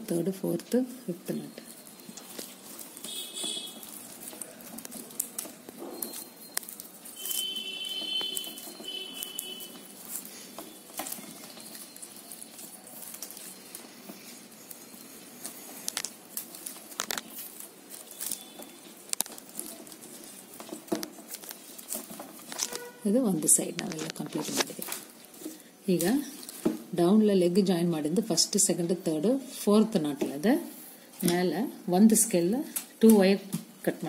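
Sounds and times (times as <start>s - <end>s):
plastic wire clicking and rubbing: 1.8s - 25.5s.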